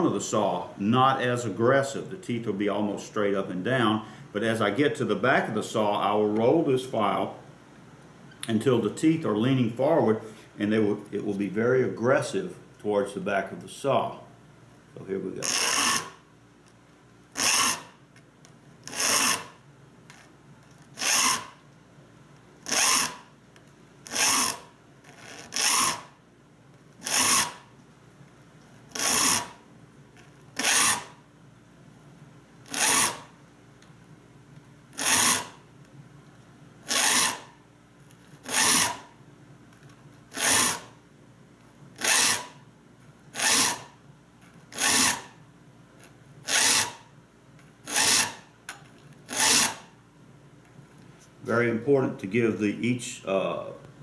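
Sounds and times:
file rasping on saw teeth: 15.4 - 16.2, 17.4 - 17.9, 18.9 - 19.5, 21.0 - 21.5, 22.7 - 23.2, 24.1 - 24.6, 25.4 - 26.1, 27.0 - 27.6, 28.9 - 29.6, 30.6 - 31.1, 32.7 - 33.2, 35.0 - 35.6, 36.9 - 37.4, 38.4 - 39.0, 40.3 - 40.9, 42.0 - 42.5, 43.4 - 43.9, 44.7 - 45.3, 46.5 - 47.0, 47.9 - 48.4, 49.3 - 49.8.

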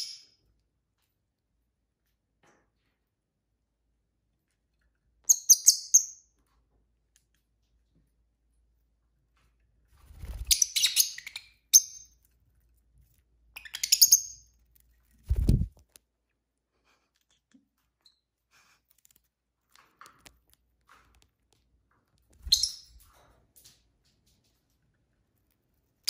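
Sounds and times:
lovebirds chirping: 10.4 - 12.3, 13.5 - 14.6, 22.4 - 23.0.

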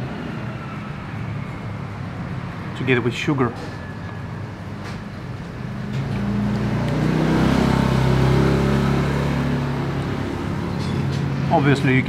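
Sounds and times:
vehicle driving past: 0.0 - 11.9.

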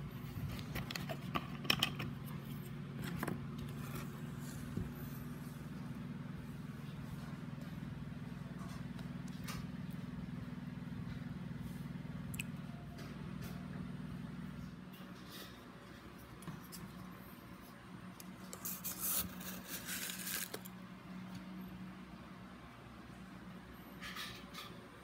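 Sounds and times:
steady low hum: 0.0 - 25.0
salt rustling in plastic jar: 18.6 - 20.7.

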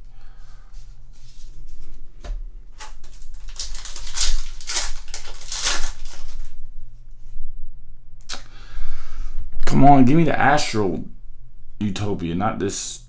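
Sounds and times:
foil wrapper tearing and crinkling: 2.8 - 6.6.

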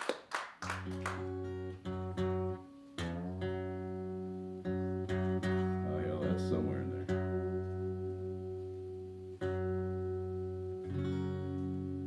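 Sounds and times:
applause: 0.0 - 1.5
acoustic guitar note plucked: 1.0 - 12.0.

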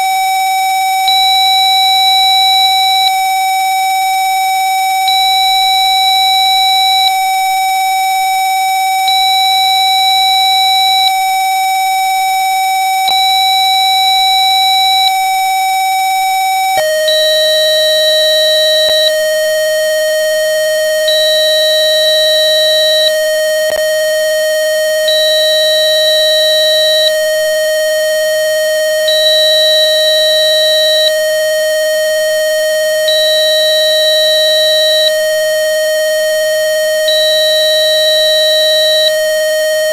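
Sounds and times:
high beep: 16.8 - 19.4
steady buzzy tone: 16.8 - 28.0.

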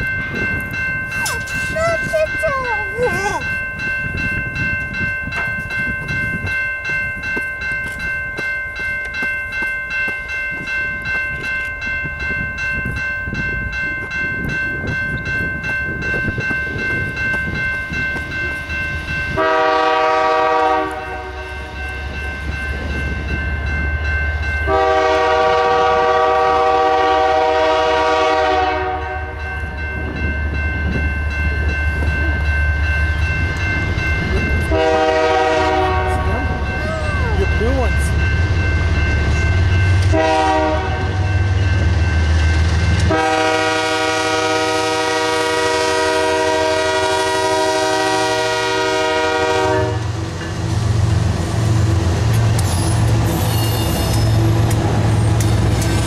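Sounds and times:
crossing bell ringing: 0.0 - 56.0
locomotive horn blasts: 19.4 - 21.8, 24.7 - 29.4, 34.7 - 36.5, 40.0 - 41.2, 43.0 - 50.1.

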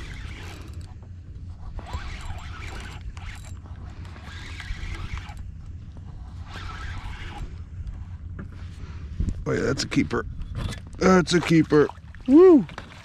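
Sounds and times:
fishing reel whirring: 0.0 - 1.0, 1.6 - 5.5, 6.3 - 7.6.

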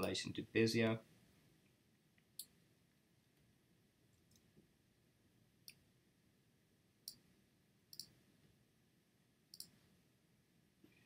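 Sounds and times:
computer mouse clicks: 7.9 - 8.2, 9.5 - 9.8.

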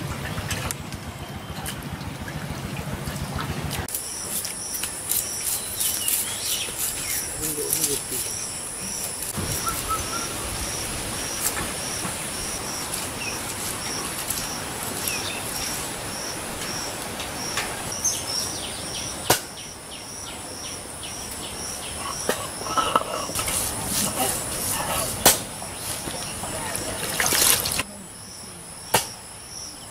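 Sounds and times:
insect drone: 3.9 - 29.9
grinding paste on stone: 22.0 - 25.2.

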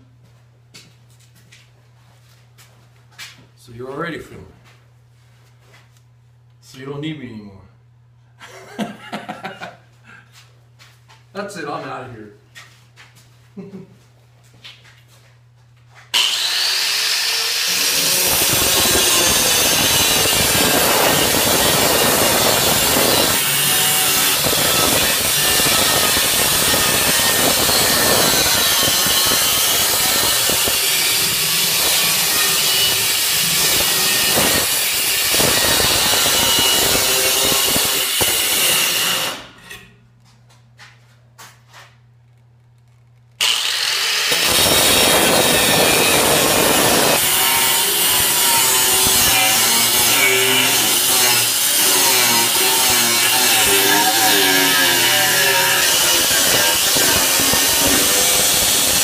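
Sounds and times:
angle grinder cutting steel: 16.1 - 39.8, 43.4 - 59.0.

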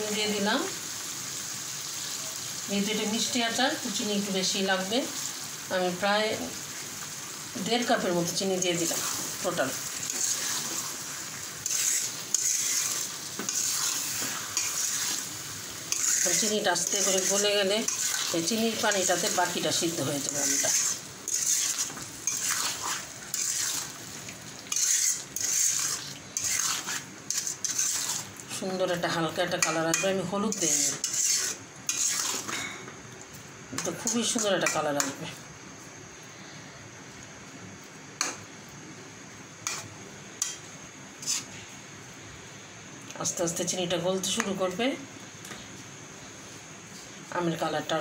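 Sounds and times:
steady low hiss: 0.0 - 48.0
metal spatula scraping a pan: 10.0 - 11.0, 11.6 - 15.3, 15.9 - 24.0, 24.7 - 28.3, 29.6 - 32.8, 41.2 - 41.6.

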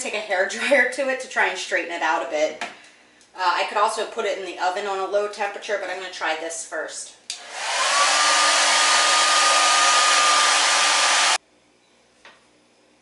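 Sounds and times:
hair dryer switch click: 7.3 - 8.0
hair dryer whining and hissing: 7.3 - 11.4.

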